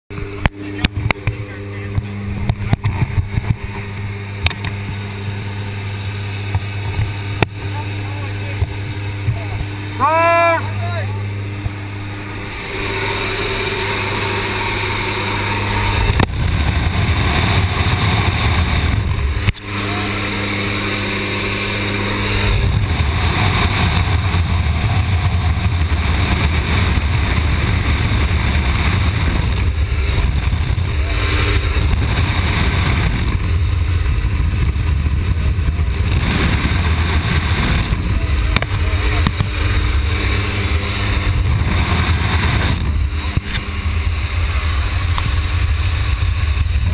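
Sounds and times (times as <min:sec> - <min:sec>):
plane engine drone: 0:00.1 - 0:46.9
wind rushing past open door: 0:11.9 - 0:38.7.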